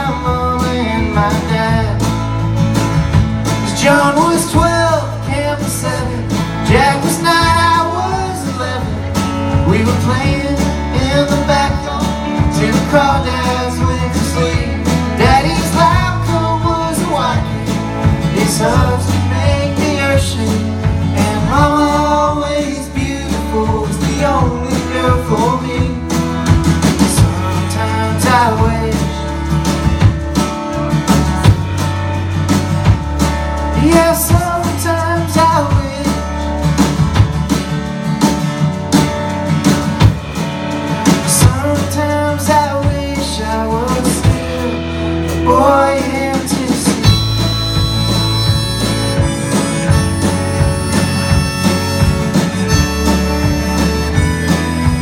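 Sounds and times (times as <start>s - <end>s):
live band playing: 0.0s - 55.0s
lead melody bending in pitch: 47.0s - 55.0s.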